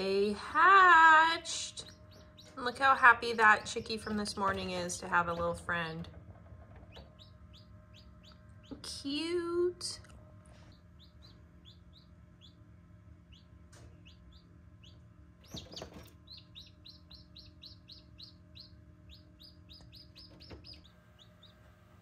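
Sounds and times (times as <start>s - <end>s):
chicks peeping: 1.5s - 5.5s, 6.3s - 9.0s, 10.5s - 22.0s.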